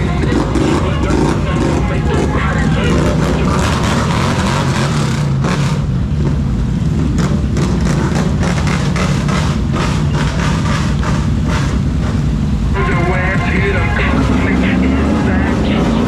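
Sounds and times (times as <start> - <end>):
atv engines idling: 0.0 - 16.0
heavy rain falling: 9.8 - 16.0.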